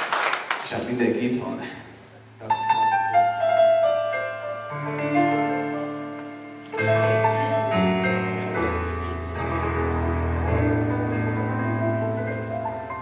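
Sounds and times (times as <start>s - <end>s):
keyboard piano chords: 2.3s - 13.0s
sustained low bass notes: 6.8s - 13.0s.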